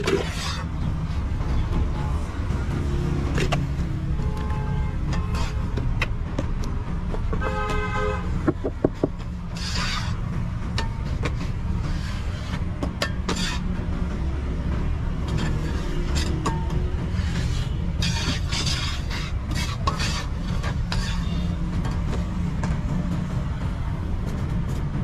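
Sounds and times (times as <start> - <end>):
knocks: 8.4 - 9.2
hands scraping mortar: 8.4 - 10.2, 17.2 - 21.4.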